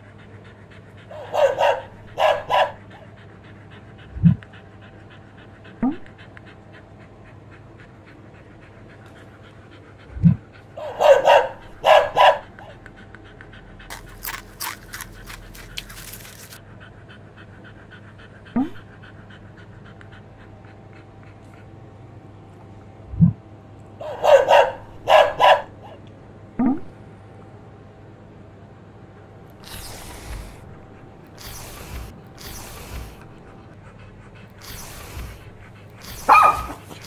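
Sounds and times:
dog vocalising: 0:00.0 - 0:06.8, 0:08.0 - 0:12.8, 0:13.8 - 0:16.6, 0:29.5 - 0:37.0
dog panting: 0:00.0 - 0:23.0, 0:24.0 - 0:26.0, 0:29.4 - 0:37.0.

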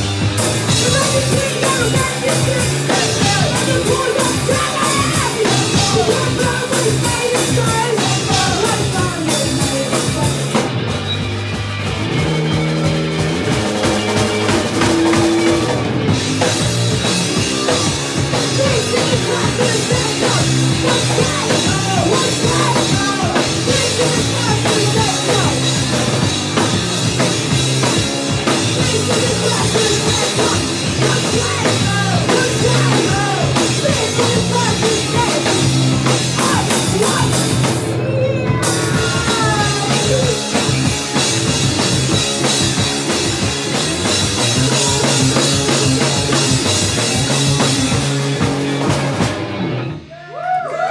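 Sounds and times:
punk rock band playing: 0:00.0 - 0:50.9
woman singing: 0:00.7 - 0:10.5, 0:18.3 - 0:25.7, 0:28.7 - 0:40.6.

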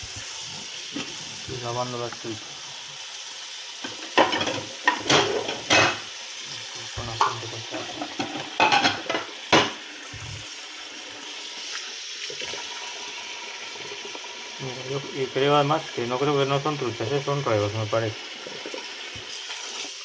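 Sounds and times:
running water: 0:00.0 - 0:20.0.

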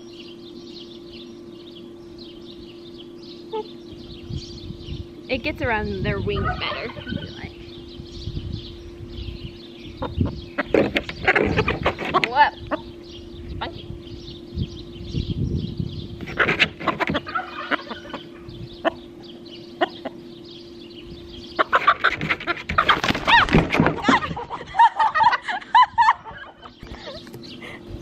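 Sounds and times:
chicken clucking: 0:16.3 - 0:18.3, 0:21.6 - 0:23.2.

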